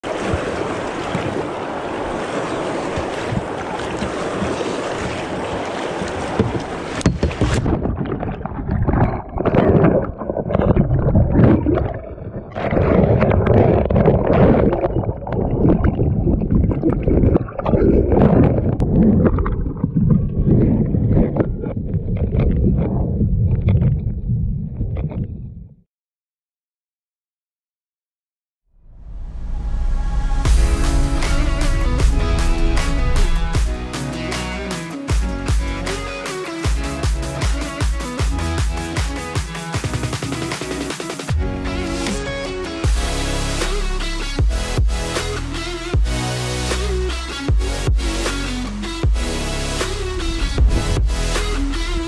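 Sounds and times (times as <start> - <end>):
river water rushing: 0.0 - 7.4
underwater gurgling turbulence: 0.0 - 25.6, 29.2 - 34.0, 49.2 - 52.0
wind on microphone: 6.3 - 25.7, 50.1 - 52.0.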